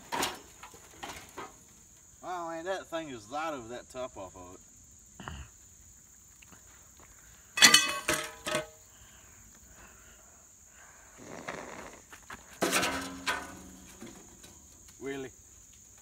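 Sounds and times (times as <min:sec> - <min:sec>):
metal lid clanking on ground: 0:07.6 - 0:08.8, 0:12.6 - 0:14.7
sledgehammer clanging on metal: 0:07.6 - 0:08.8, 0:12.6 - 0:14.7.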